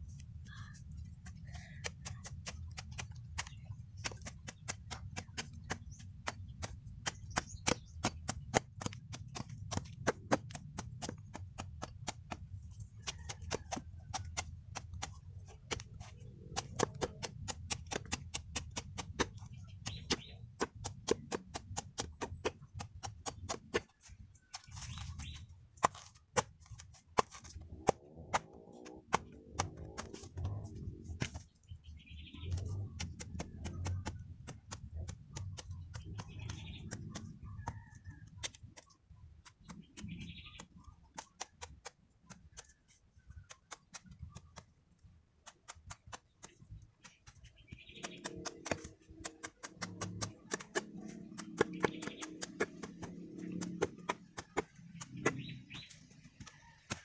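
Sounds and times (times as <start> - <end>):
machete chopping: 24.6 - 31.4, 48.0 - 57.0.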